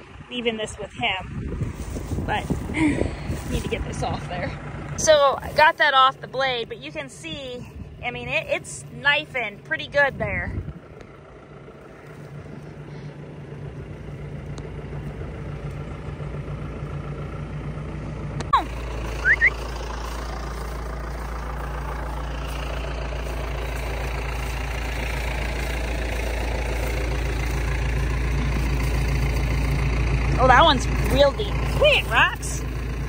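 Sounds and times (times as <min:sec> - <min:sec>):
tractor engine idling: 0:00.0 - 0:33.0
high rising chirps: 0:19.1 - 0:19.7
short falling whistle: 0:19.2 - 0:19.6.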